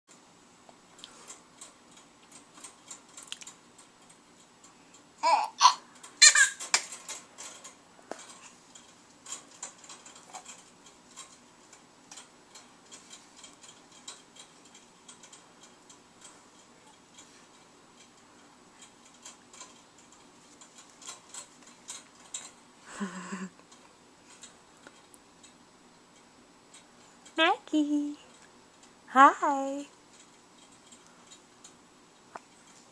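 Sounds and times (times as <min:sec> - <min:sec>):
baby squealing: 0:05.2 - 0:06.6
baby jumper clicks and squeaks: 0:05.2 - 0:07.2.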